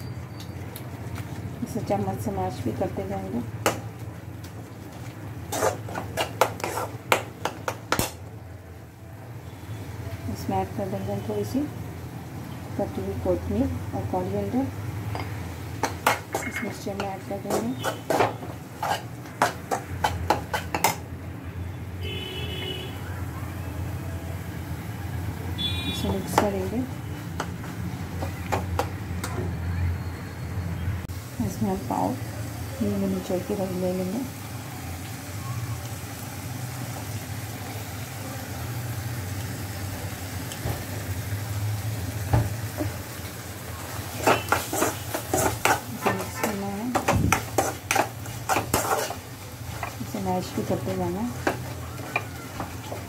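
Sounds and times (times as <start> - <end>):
mixture sizzling in a pan: 1.0 - 8.2, 9.4 - 21.0, 31.1 - 53.0
metal spoon clinking against pan: 15.1 - 21.0, 44.2 - 49.2.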